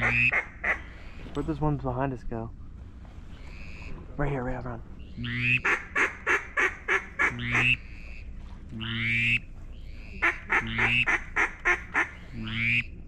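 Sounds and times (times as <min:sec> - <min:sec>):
duck call quacking: 0:00.0 - 0:00.9, 0:05.2 - 0:08.2, 0:08.8 - 0:09.4, 0:10.1 - 0:12.9.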